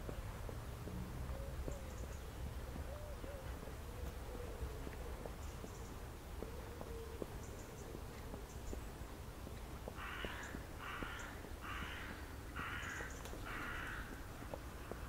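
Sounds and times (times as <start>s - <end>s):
crow cawing: 10.0s - 14.2s.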